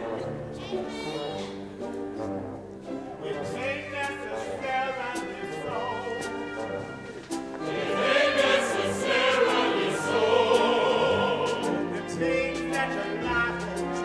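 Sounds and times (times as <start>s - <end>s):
orchestra playing: 0.0s - 14.0s
opera chorus singing: 3.2s - 14.0s.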